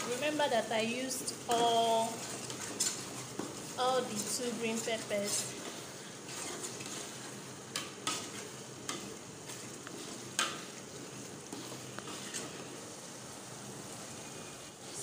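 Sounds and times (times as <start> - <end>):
sizzling in pot: 0.0 - 15.0
spoon stirring thick stew: 1.3 - 12.9.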